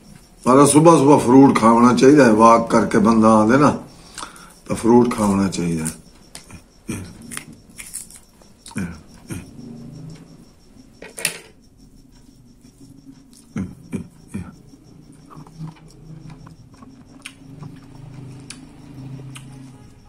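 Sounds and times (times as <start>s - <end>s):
faint low hum: 0.0s - 20.0s
wet chewing clicks and smacks: 15.0s - 19.8s.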